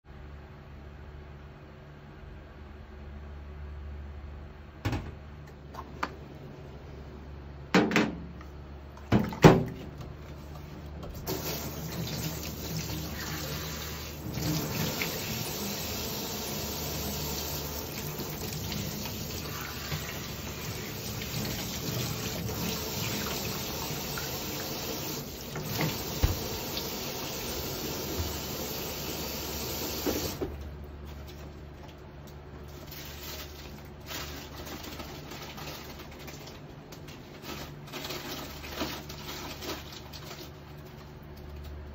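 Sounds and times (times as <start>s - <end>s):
tap running into steel sink: 25.6s - 26.6s.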